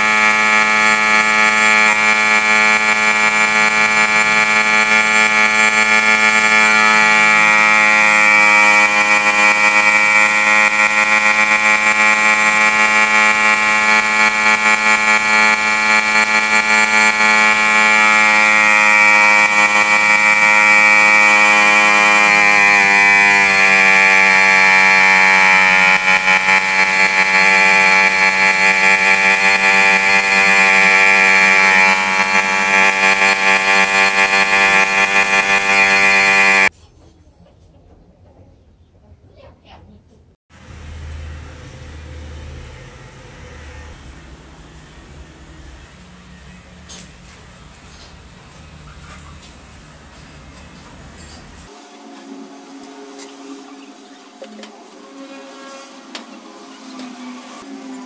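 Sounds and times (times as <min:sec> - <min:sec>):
air compressor humming: 0:00.0 - 0:36.7.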